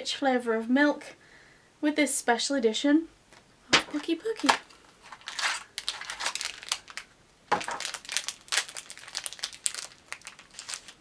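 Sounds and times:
plastic wrapper crinkling: 0:03.8 - 0:11.0.

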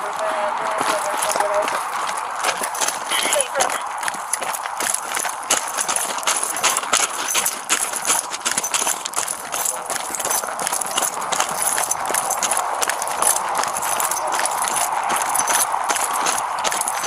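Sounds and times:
footsteps crunching on gravel: 0:00.0 - 0:17.0.

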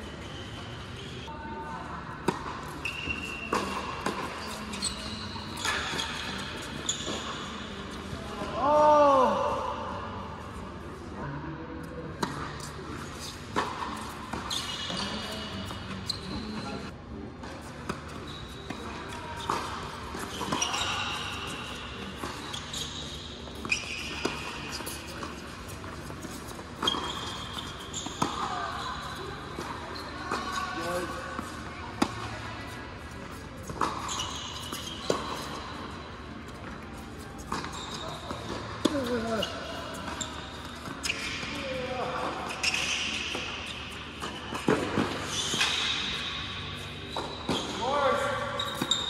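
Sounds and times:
shoe squeak: 0:00.0 - 0:01.4, 0:02.3 - 0:08.5, 0:12.2 - 0:16.9, 0:17.5 - 0:49.0.

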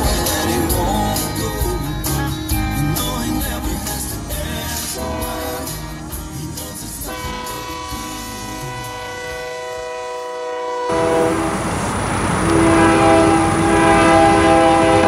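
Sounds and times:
locomotive air horn: 0:05.0 - 0:05.7, 0:07.0 - 0:15.0
passing train rumble: 0:07.1 - 0:15.0.

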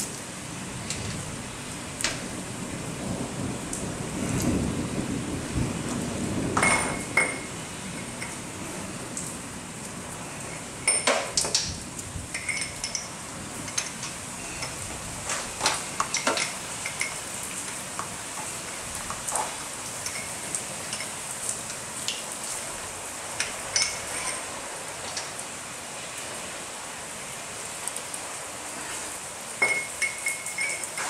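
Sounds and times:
rain hissing: 0:00.0 - 0:31.0
socket wrench clinking on metal: 0:12.4 - 0:13.1, 0:29.6 - 0:31.0.

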